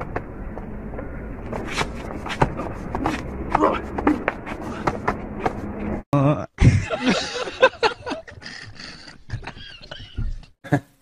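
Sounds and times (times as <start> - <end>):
street noise: 0.0 - 6.1
young man laughing hard: 6.6 - 11.0.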